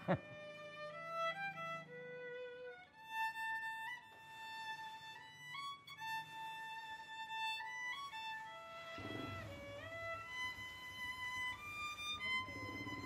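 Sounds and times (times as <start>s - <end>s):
solo violin slow melody: 0.0s - 13.0s.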